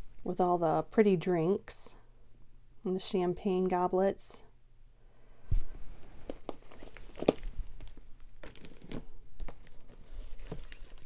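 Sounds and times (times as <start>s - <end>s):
plastic envelopes crinkling: 6.4s - 11.0s.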